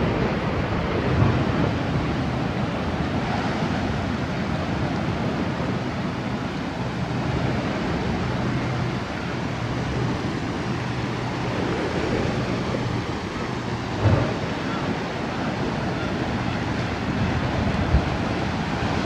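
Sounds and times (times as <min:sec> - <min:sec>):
wind on microphone: 0:00.0 - 0:19.0
surf breaking on rocks: 0:09.9 - 0:19.0.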